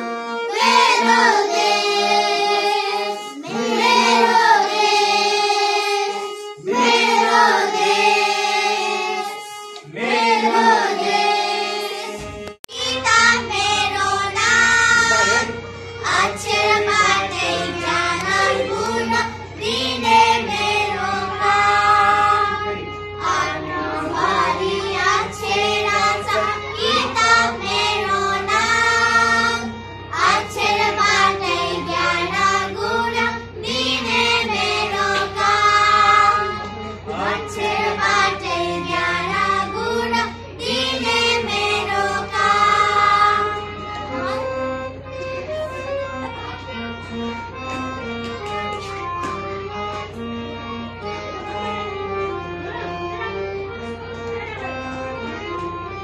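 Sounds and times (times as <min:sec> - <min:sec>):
girls singing together: 0:00.4 - 0:44.4.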